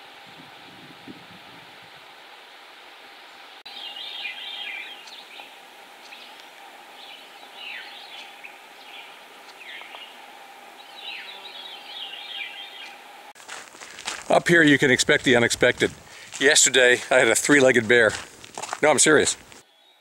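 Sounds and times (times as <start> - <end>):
bird singing downward phrases: 3.7 - 10.2, 10.8 - 13.1.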